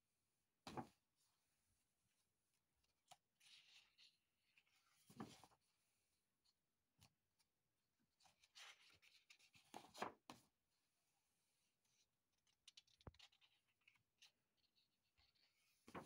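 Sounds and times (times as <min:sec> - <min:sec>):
paper page turning: 0:12.4 - 0:14.7.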